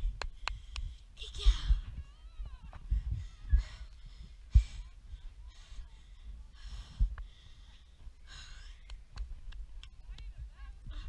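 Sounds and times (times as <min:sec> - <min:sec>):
wind rumble on microphone: 0:00.0 - 0:11.0
heavy breathing: 0:02.8 - 0:09.0.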